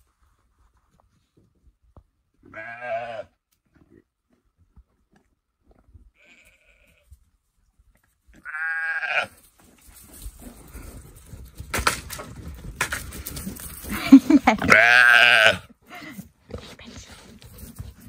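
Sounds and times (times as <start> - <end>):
lambs bleating: 2.5 - 3.3, 8.4 - 9.3, 14.6 - 15.7
rustling: 9.3 - 14.9, 16.0 - 18.0.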